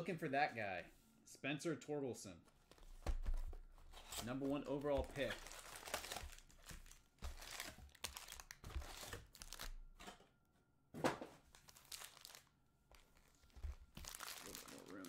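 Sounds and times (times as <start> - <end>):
foil wrappers crinkling: 4.1 - 9.8, 11.5 - 15.0.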